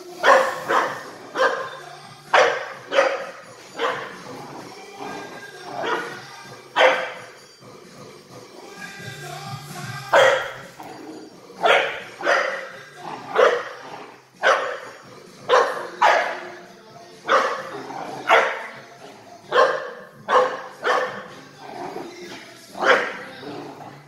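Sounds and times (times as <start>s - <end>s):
small dog barking: 19.5s - 21.2s.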